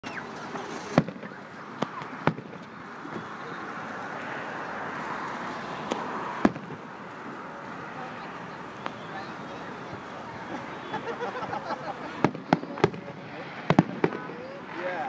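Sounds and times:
fireworks bangs: 0.3 - 3.3, 5.8 - 7.4, 12.1 - 15.0.

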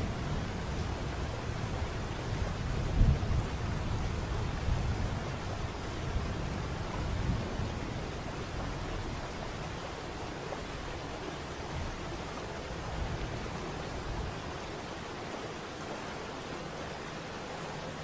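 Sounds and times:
waterfall rushing: 5.2 - 18.0.

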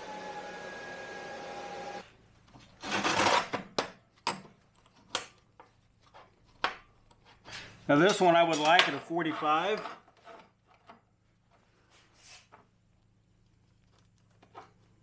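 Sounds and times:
metal clanks and taps: 8.0 - 9.1.

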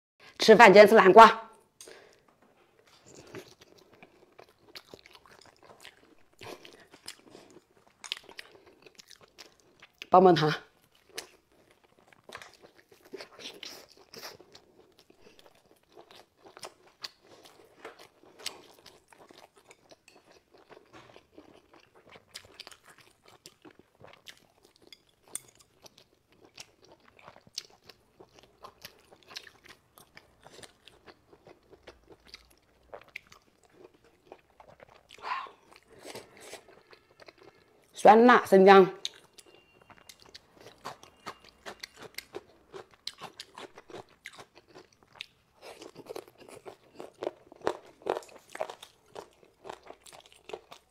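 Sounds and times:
mouth chewing meat: 39.0 - 50.9.

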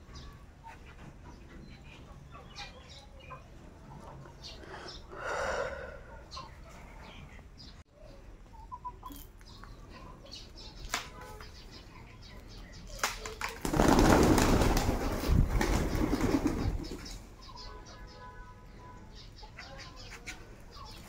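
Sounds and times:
pigeon wings flapping: 13.0 - 17.0.

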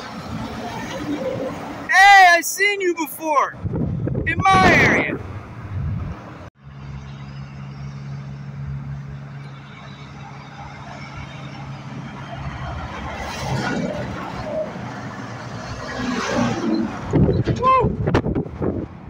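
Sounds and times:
diesel truck engine droning: 4.9 - 19.0
truck tyre noise: 5.1 - 19.0.

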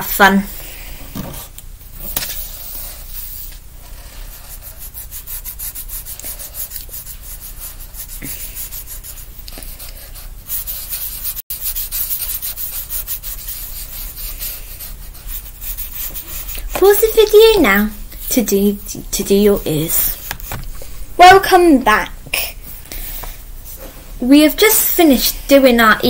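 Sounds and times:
markers scratching on paper: 2.1 - 18.4.

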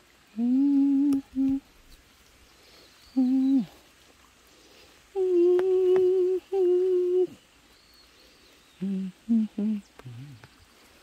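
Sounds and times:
person humming a tune: 0.3 - 1.7, 3.1 - 3.8, 5.1 - 7.4, 8.8 - 10.6.

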